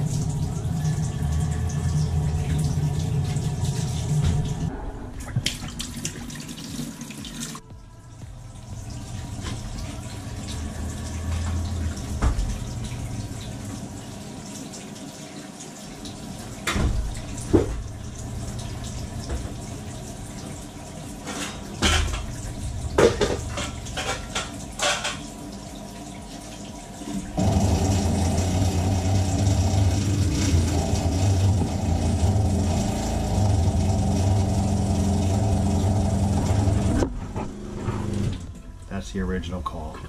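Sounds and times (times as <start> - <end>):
knocks and bangs in pipes: 16.6 - 18.2, 21.2 - 25.4
loud steady hum: 27.2 - 40.0.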